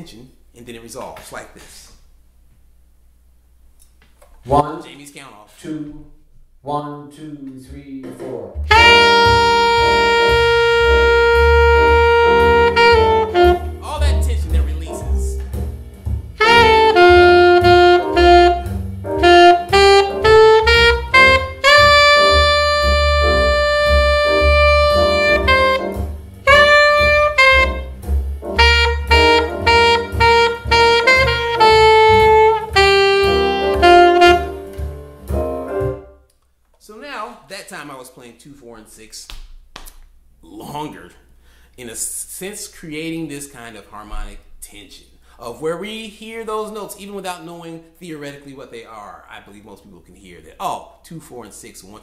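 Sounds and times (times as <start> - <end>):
bass accompaniment: 5.8 - 36.3
saxophone playing jazz: 8.6 - 36.2.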